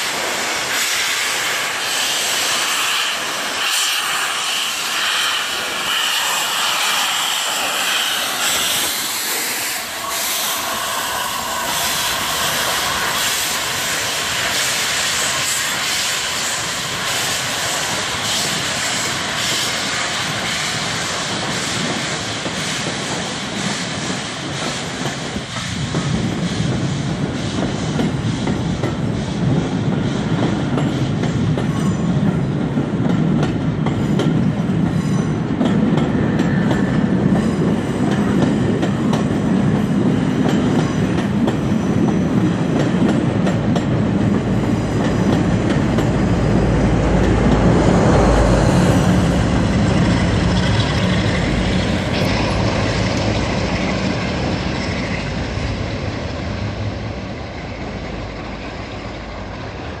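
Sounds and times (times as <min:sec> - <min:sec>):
train wheels clattering over rail joints: 0:00.0 - 0:59.6.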